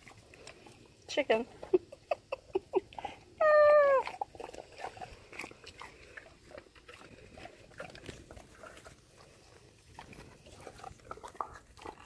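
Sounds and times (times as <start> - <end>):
dog crunching bone: 0.0 - 0.9, 4.0 - 12.0.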